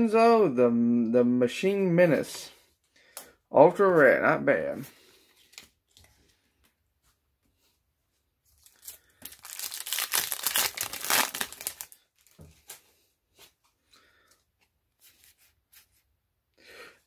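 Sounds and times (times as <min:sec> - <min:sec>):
foil wrapper tearing and crinkling: 0:08.6 - 0:12.8.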